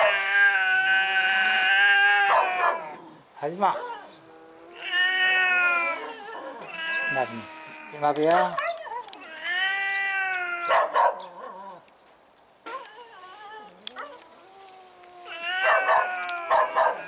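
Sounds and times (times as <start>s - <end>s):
cat yowling aggressively: 0.0s - 11.8s, 12.7s - 17.0s.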